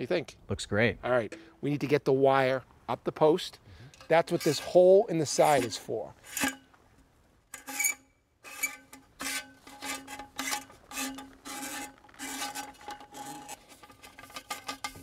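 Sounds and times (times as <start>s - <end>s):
wire scraping inside metal tube: 4.0s - 6.6s, 7.5s - 15.0s.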